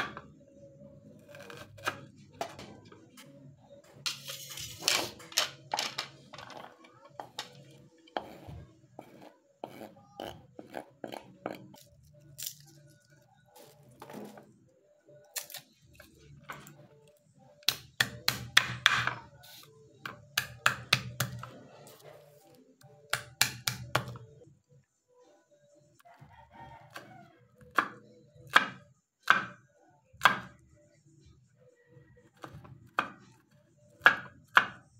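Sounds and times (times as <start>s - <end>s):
knife scraping cutting board: 8.2s - 11.8s.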